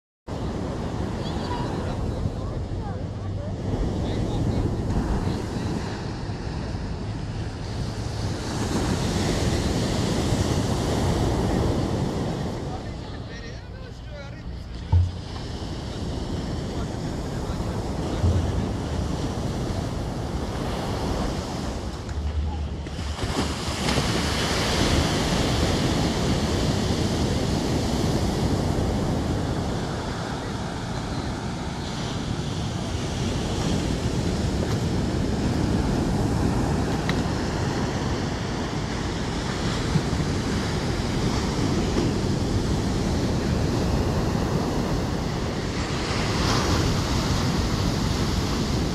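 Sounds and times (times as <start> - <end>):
wind buffeting microphone: 14.6 - 48.9
surf breaking on beach: 14.8 - 48.9.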